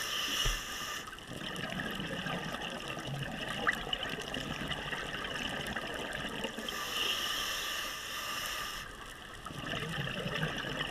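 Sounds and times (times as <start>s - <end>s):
underwater hiss with crackling: 0.0s - 10.9s
scuba regulator exhaust bubbles: 1.3s - 6.8s, 9.4s - 10.9s.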